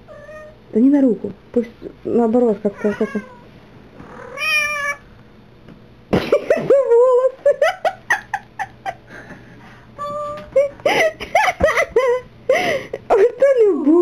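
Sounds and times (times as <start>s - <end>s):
cat meowing and yowling: 4.2s - 5.0s.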